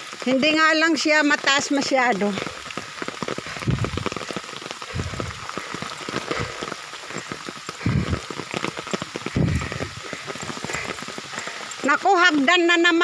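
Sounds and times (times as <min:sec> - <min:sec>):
heavy rain pattering: 0:00.0 - 0:13.0
dull low thumps: 0:03.4 - 0:04.2, 0:04.9 - 0:05.5, 0:07.8 - 0:08.3, 0:09.2 - 0:10.1.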